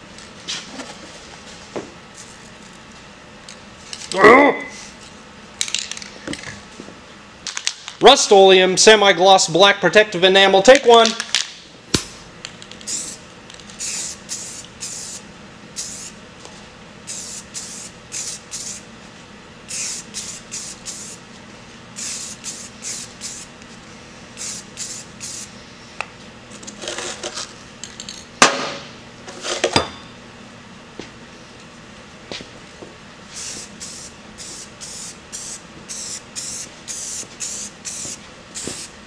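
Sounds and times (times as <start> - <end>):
aerosol spray can hissing: 12.9 - 13.2, 13.8 - 15.2, 15.8 - 16.2, 17.1 - 18.8, 19.7 - 21.2, 22.0 - 23.5, 24.4 - 25.5, 33.3 - 38.9.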